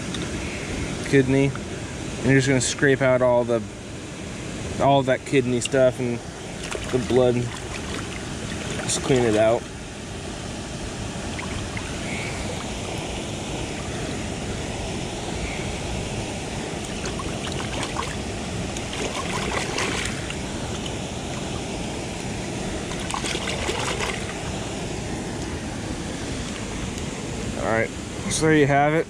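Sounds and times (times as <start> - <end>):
river water rushing: 5.7 - 28.4.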